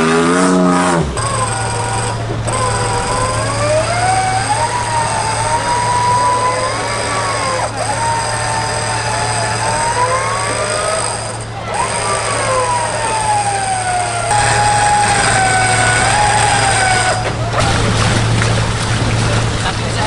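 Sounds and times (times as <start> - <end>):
whining drivetrain note: 0.0 - 19.3
engine pulling in low gear: 0.0 - 20.0.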